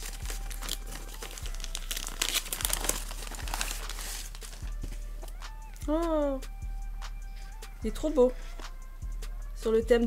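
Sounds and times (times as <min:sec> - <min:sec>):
wrapping paper rustling: 0:00.0 - 0:05.4.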